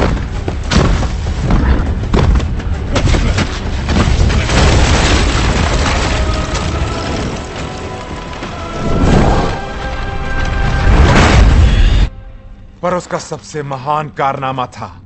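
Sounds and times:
wood splintering crash: 0.0s - 12.0s
film music: 0.0s - 15.0s.

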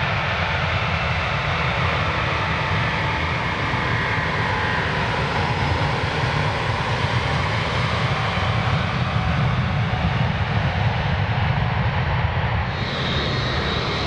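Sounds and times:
jet engines roaring: 12.6s - 14.0s.

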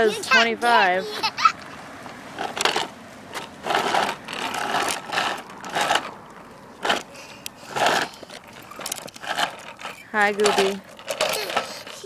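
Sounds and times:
plastic wheels scraping on concrete: 0.0s - 12.0s.

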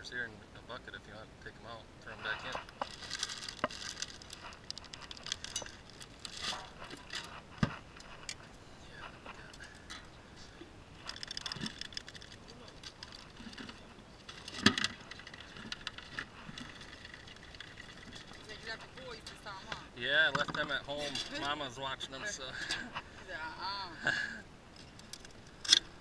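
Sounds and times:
plastic zip bag crinkling: 2.7s - 7.3s.

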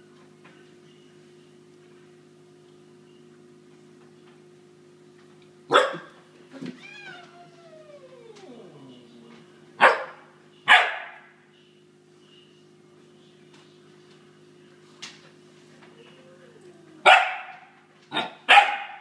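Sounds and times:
puppy barking: 5.7s - 6.2s, 9.8s - 11.3s, 17.0s - 19.0s
puppy whining: 6.5s - 9.5s.

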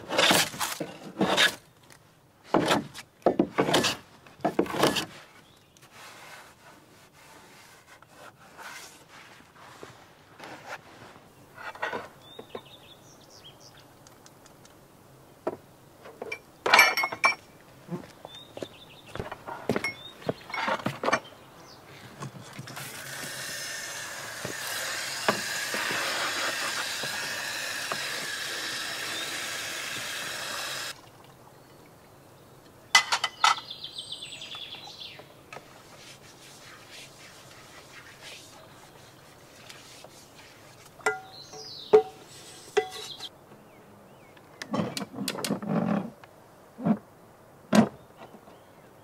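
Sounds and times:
light knocks and clinks: 16.2s - 17.5s, 19.4s - 21.3s.

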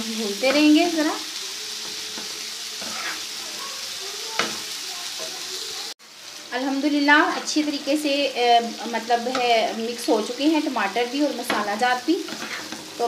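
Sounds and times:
liver sizzling on a griddle: 0.0s - 13.0s
spatula scraping: 1.7s - 3.8s, 11.5s - 13.0s.

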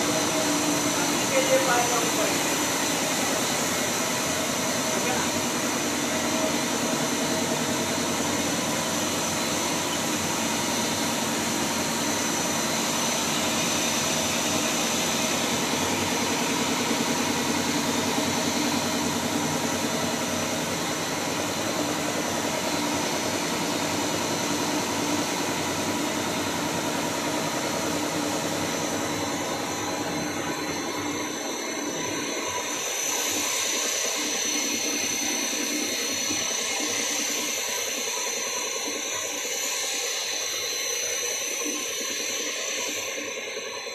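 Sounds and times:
mechanical drone: 0.0s - 43.9s.

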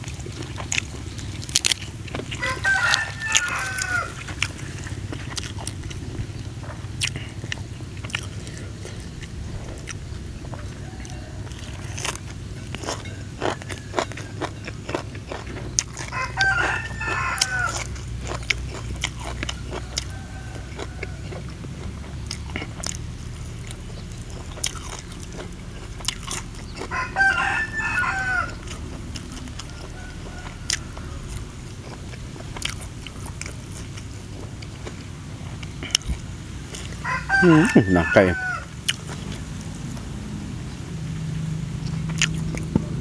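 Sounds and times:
person chewing and crunching food: 0.0s - 40.2s, 41.4s - 43.0s
rooster crowing: 2.3s - 5.0s, 10.4s - 15.4s, 16.0s - 21.8s, 24.0s - 32.7s, 36.7s - 39.6s
wet mouth clicks: 35.6s - 37.0s.

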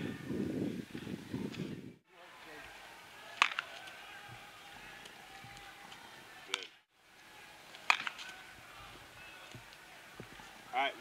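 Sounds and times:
bat cracking against baseball: 3.3s - 4.0s, 7.7s - 8.4s.

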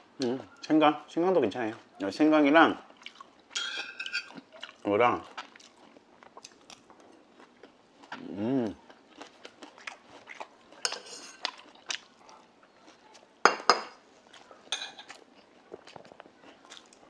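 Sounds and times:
metal bowl clinking: 3.6s - 4.3s
person humming: 8.2s - 8.8s.

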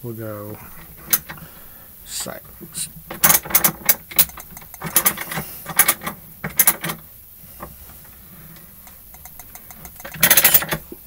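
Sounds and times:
bench vise handle clicking: 1.0s - 1.4s, 3.1s - 7.0s, 9.1s - 11.0s.

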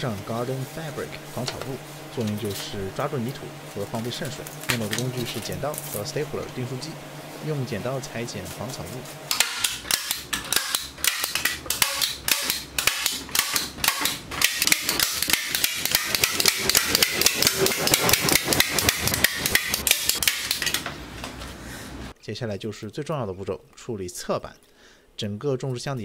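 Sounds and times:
staple gun firing: 9.3s - 17.0s.

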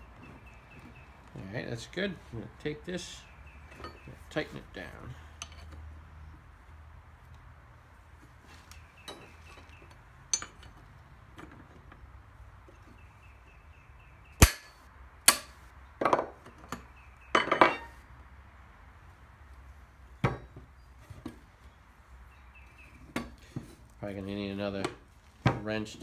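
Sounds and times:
wrenches clanking on metal: 10.3s - 10.8s.

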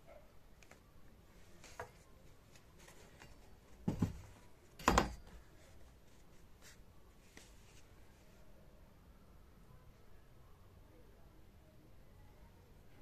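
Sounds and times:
rustling and scraping handling noises: 0.6s - 8.4s
soft knocks: 3.8s - 5.3s.

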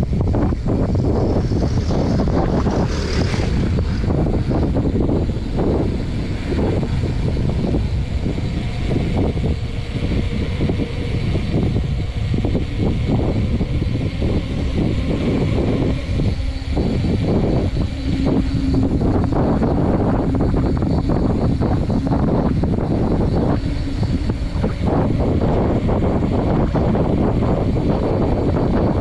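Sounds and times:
faint steady hum: 0.0s - 29.0s
wind buffeting microphone: 0.0s - 29.0s.

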